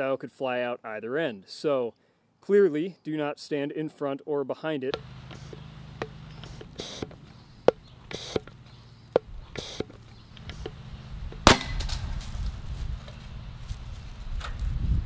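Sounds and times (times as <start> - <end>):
short hisses: 5.0 - 11.6
cannon firing loud crack: 11.4 - 12.2.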